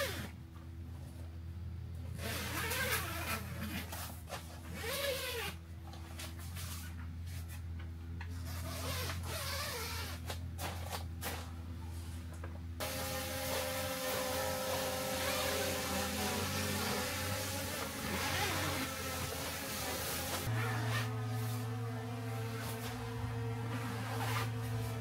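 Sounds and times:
steady low hum: 10.1 - 25.0.

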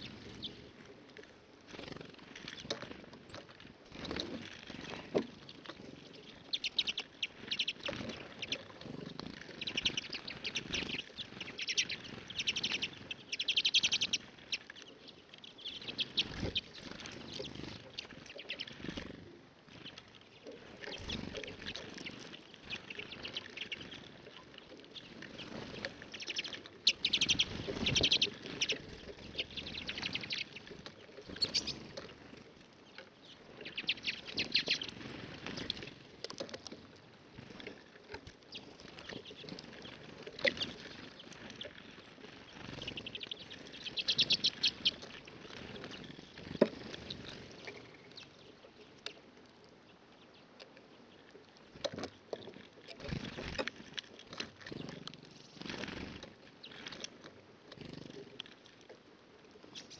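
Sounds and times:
songbirds twittering: 0.0 - 58.6, 59.5 - 59.9
high thin bird chirps: 6.0 - 8.7, 9.4 - 19.1, 19.8 - 31.9, 33.6 - 35.8, 38.5 - 45.1.

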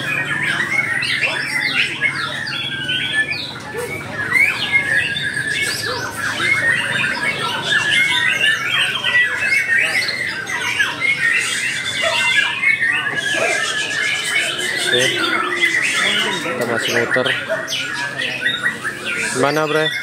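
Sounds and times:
many songbirds singing: 0.0 - 20.0.

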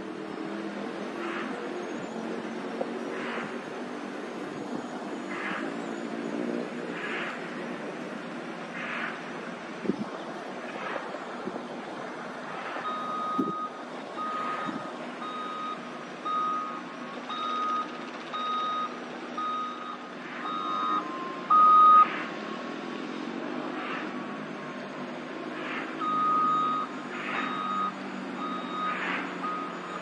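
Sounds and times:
engine running: 0.0 - 30.0
reversing alarm beeping: 12.8 - 22.2, 25.8 - 30.0.

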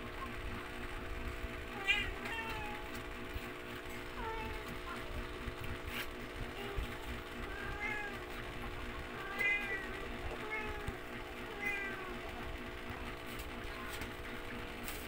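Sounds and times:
steady low hum: 0.0 - 15.0
cat meowing: 1.8 - 2.9, 7.5 - 8.2, 9.2 - 12.2.

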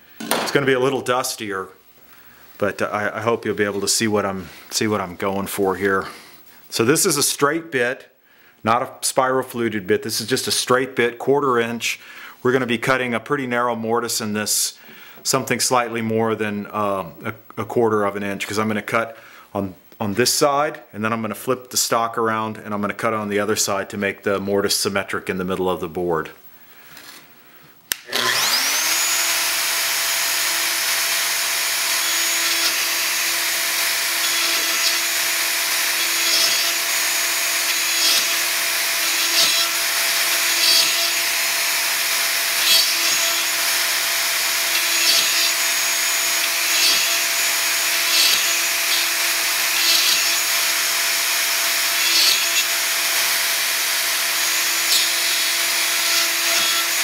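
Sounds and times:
router bit cutting into wood: 27.9 - 57.0
router motor whining: 27.9 - 57.0.

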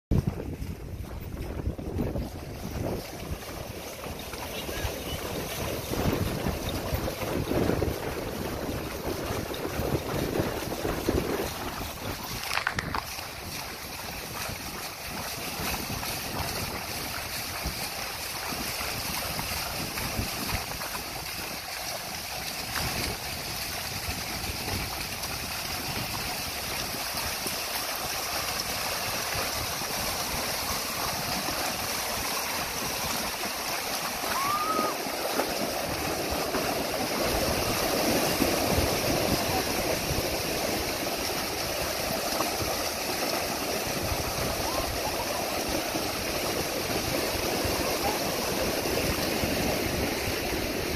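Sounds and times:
horses splashing through water: 0.1 - 50.9.

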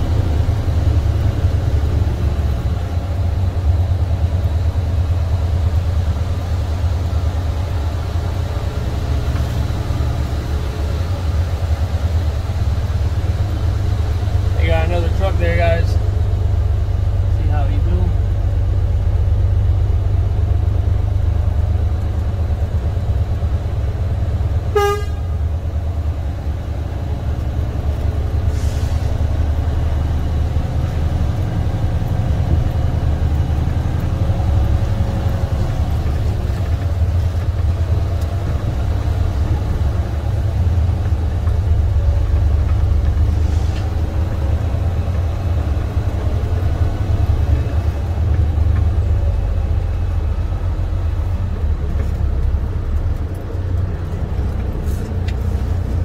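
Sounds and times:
truck diesel engine rumbling: 0.0 - 56.0
truck horn toot: 24.7 - 25.4.

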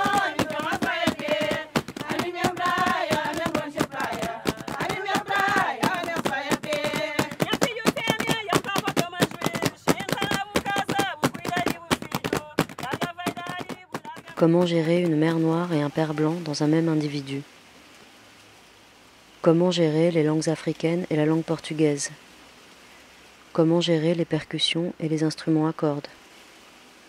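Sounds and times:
hand slaps on cloth pad: 0.0 - 15.2
women singing together: 0.0 - 17.1.

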